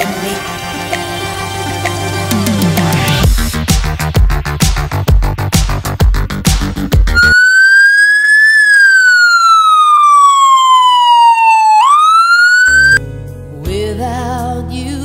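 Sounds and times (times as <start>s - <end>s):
electronic dance music: 7.1s - 13.0s
siren wailing: 7.2s - 13.0s
slow music track: 12.6s - 15.0s.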